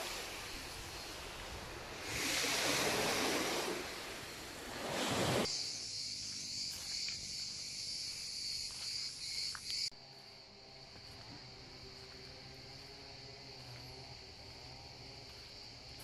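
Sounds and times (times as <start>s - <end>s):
surf washing onto beach: 0.0s - 5.5s
high-pitched insect chorus: 0.0s - 16.0s.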